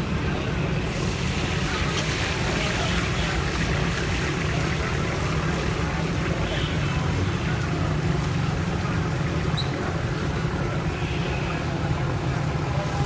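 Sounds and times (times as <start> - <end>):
food sizzling in hot oil: 0.8 - 5.8.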